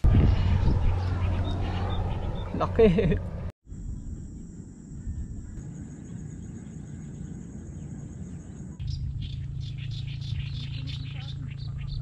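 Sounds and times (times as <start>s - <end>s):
outdoor background noise: 0.0s - 12.0s
insects trilling: 3.7s - 12.0s.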